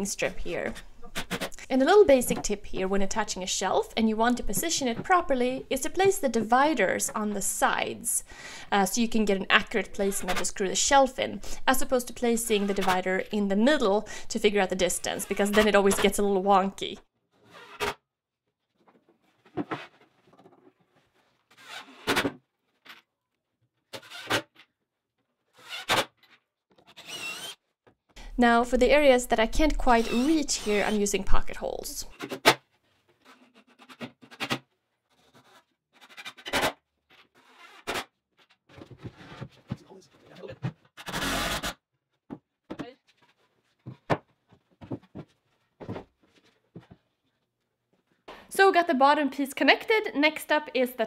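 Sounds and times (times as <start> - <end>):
cordless drill driving screws: 26.9 - 27.6.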